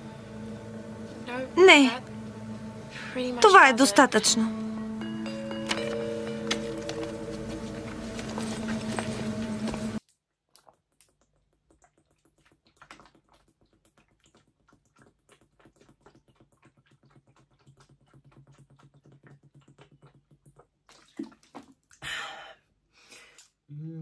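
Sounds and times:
person gulping water: 10.5s - 22.5s.

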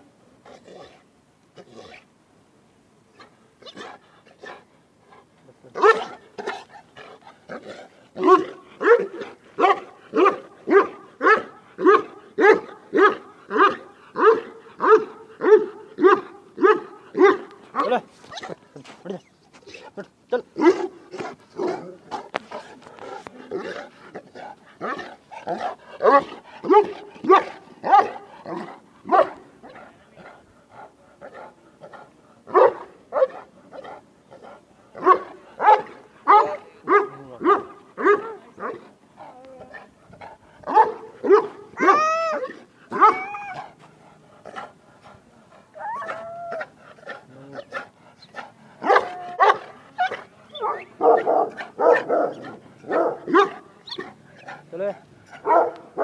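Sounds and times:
dog barking deeply: 5.8s - 6.6s, 7.5s - 18.6s, 23.5s - 29.4s, 35.0s - 38.8s, 40.6s - 43.3s, 48.8s - 54.2s, 55.4s - 56.0s
dog whining: 41.8s - 43.7s.

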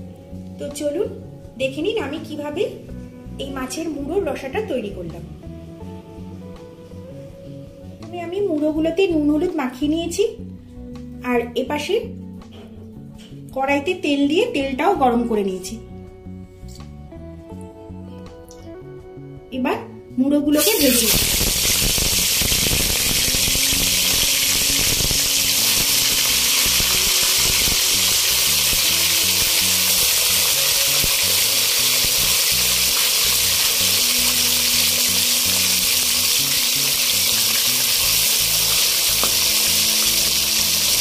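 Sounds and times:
fish frying in hot oil: 20.6s - 41.0s.

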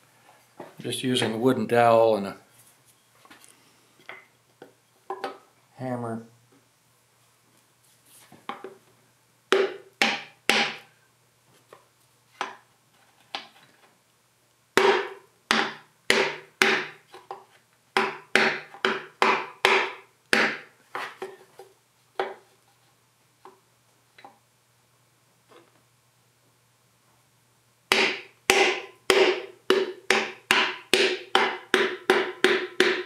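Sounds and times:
hammer striking wooden dowel: 9.5s - 10.9s, 14.8s - 17.0s, 18.0s - 20.7s, 27.9s - 33.0s.

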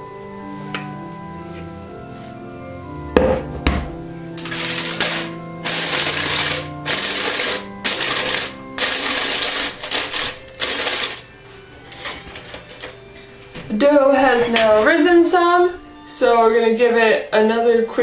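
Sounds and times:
aluminium foil crinkling: 4.4s - 11.2s.

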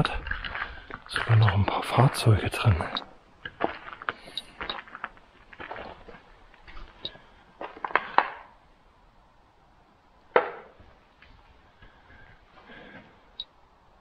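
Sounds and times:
footsteps crunching over debris: 0.0s - 8.3s.

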